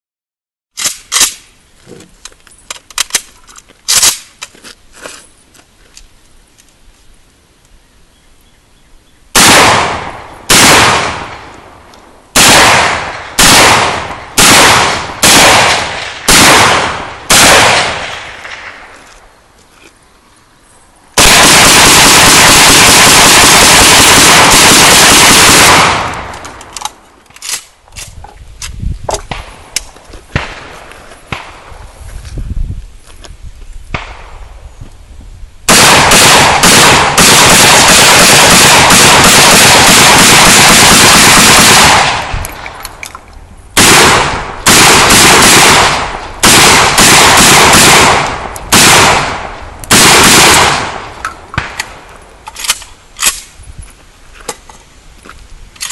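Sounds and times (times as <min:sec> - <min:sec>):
pistol gunshots: 0:09.4 - 0:11.5, 0:12.3 - 0:18.9, 0:21.2 - 0:26.7, 0:35.7 - 0:42.4, 0:43.8 - 0:52.0.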